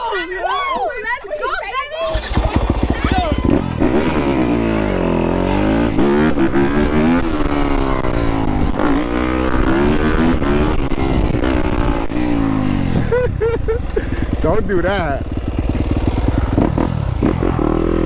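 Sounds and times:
dirt bike engine revving: 2.0s - 18.0s.

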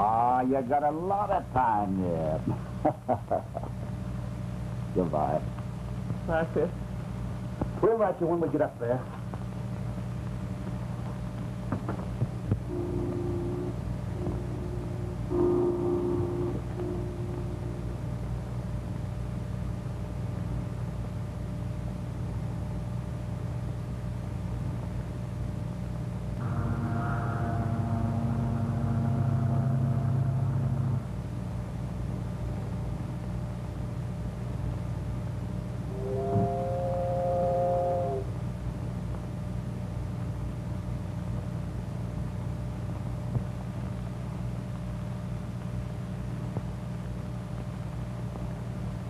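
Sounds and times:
film soundtrack hum and hiss: 0.0s - 49.0s
boat whistle chord: 15.3s - 17.9s, 26.4s - 31.0s, 35.9s - 38.3s.

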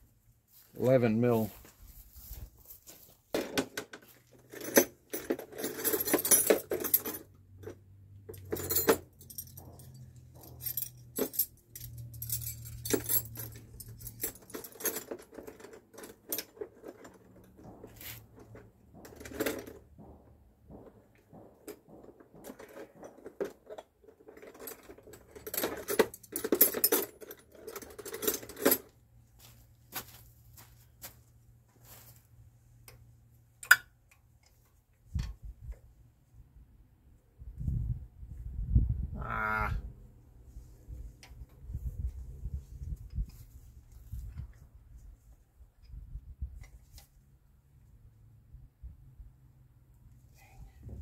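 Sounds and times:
metal hand tools clinking: 4.5s - 20.1s.

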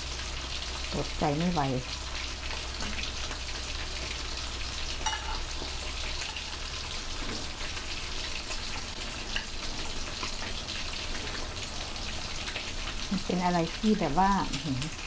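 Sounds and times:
food sizzling in hot oil: 0.0s - 15.0s
metallic utensil clink: 5.0s - 5.4s.

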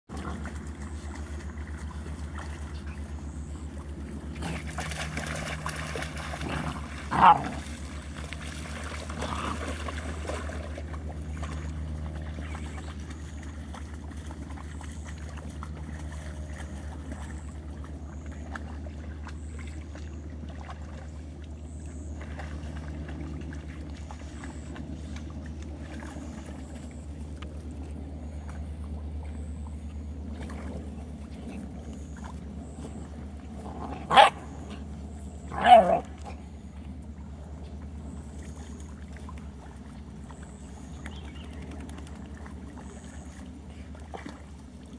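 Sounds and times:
steady low rumble: 0.1s - 44.9s
puppy yelps: 34.1s - 34.4s, 35.5s - 36.0s.

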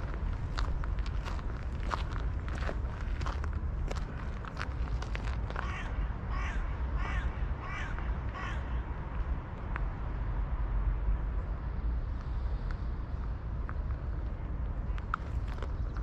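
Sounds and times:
low outdoor rumble: 0.0s - 16.0s
crow cawing: 5.6s - 8.9s.

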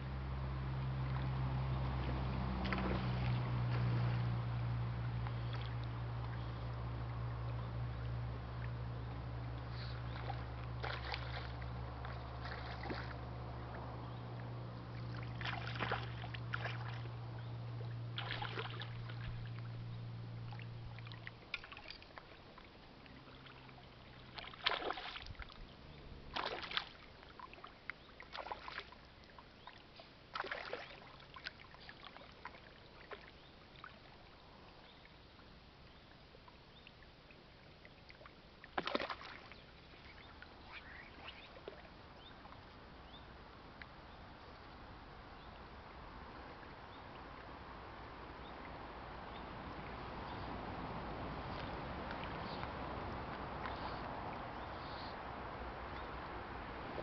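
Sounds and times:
steady low hum: 0.0s - 57.0s
fish splashing at water surface: 9.7s - 13.3s, 15.0s - 17.2s, 18.1s - 19.8s, 23.3s - 25.6s, 26.3s - 27.7s, 28.3s - 29.0s, 30.3s - 33.3s, 38.6s - 41.9s.

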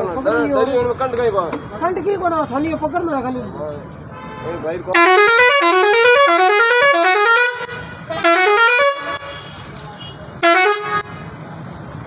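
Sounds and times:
musical truck horn tune: 4.2s - 9.6s, 10.4s - 11.2s.

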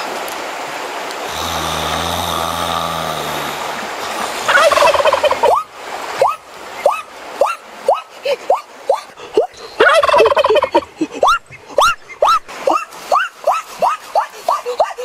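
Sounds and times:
man snoring: 1.3s - 4.5s
turkey gobbling: 4.5s - 5.6s, 8.9s - 12.4s.

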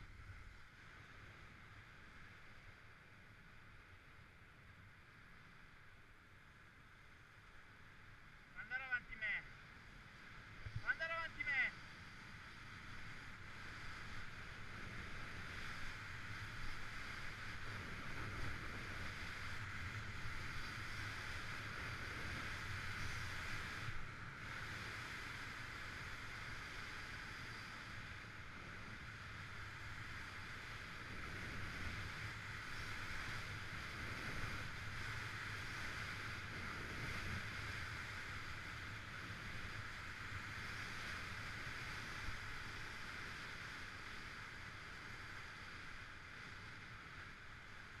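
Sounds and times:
wind rushing over microphone: 10.3s - 48.0s.

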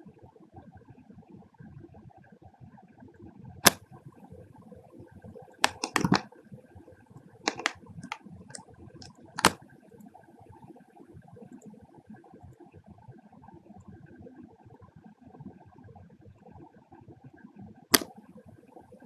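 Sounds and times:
computer mouse clicking: 5.6s - 6.3s, 7.5s - 9.6s, 17.9s - 18.2s.

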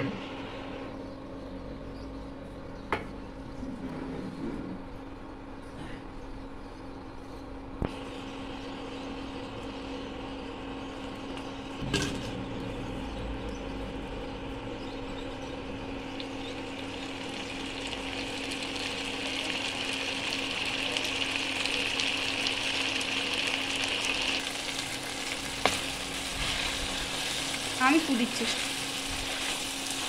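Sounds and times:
steady low hum: 0.0s - 30.0s
chicken sizzling in oil: 16.2s - 30.0s.

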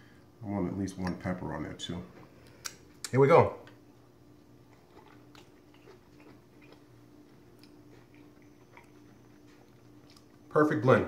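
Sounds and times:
chewing food: 4.4s - 10.5s.

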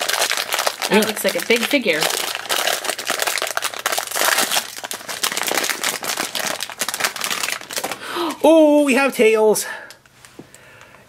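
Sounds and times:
foil bag crinkling: 0.0s - 8.4s.

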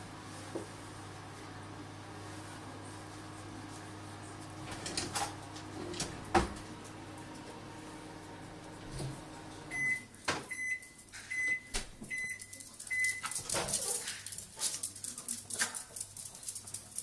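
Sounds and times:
microwave beeping: 4.7s - 13.4s
dog claws scrabbling on tile: 12.5s - 17.0s.

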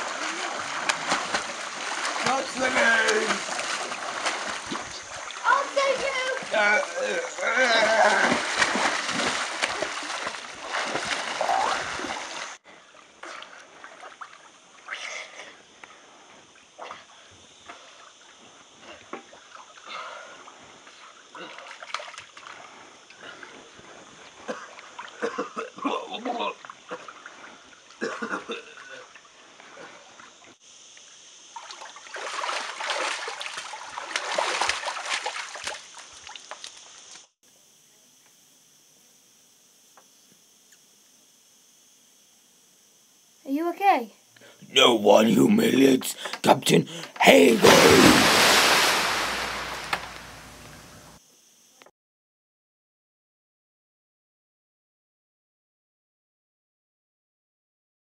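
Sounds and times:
hard water splashing: 0.0s - 12.6s, 31.6s - 36.7s, 45.8s - 51.1s
water lapping: 0.0s - 14.8s, 31.6s - 36.6s, 45.8s - 51.2s.

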